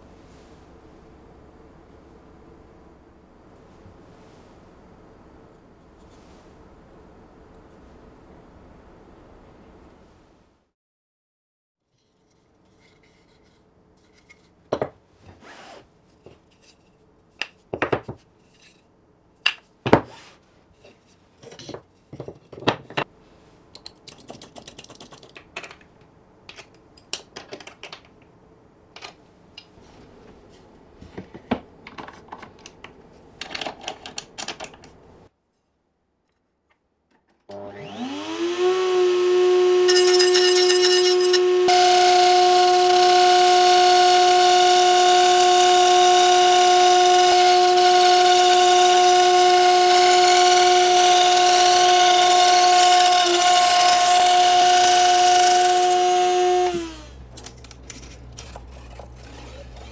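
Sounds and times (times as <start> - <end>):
router whine: 37.5 - 59.9.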